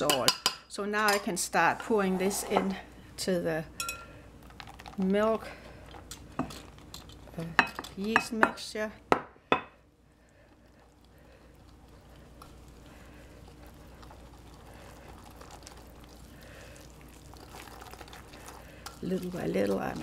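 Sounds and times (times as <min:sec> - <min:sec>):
whisk mixing dough: 0:10.7 - 0:20.0.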